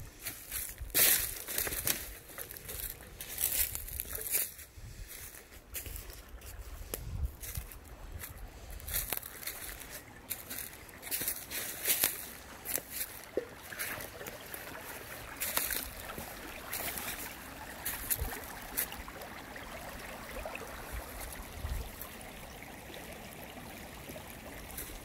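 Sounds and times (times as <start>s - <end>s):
creek babbling over gravel: 0.0s - 25.0s.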